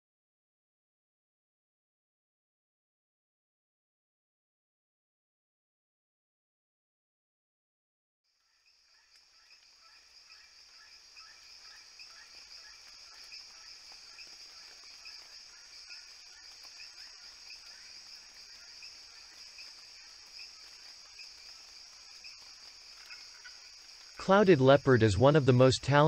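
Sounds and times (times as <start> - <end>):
insect chorus trilling: 8.3 - 26.0.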